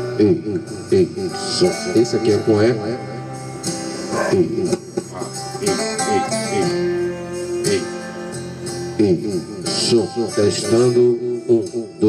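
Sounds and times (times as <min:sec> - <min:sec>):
guitar music through speaker: 0:00.0 - 0:12.0.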